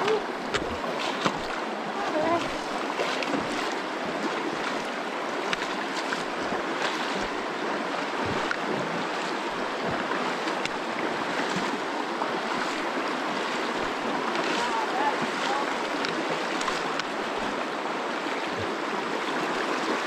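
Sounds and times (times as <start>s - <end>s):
short splashes: 0.0s - 7.4s, 8.0s - 17.5s
water rushing over rocks: 0.0s - 20.0s.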